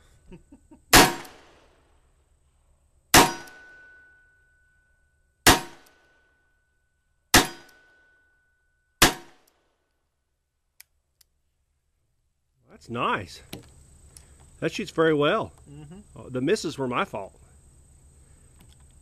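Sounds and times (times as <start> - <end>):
revolver shots: 0.9 - 1.6, 3.1 - 4.0, 7.3 - 7.9, 9.0 - 9.4.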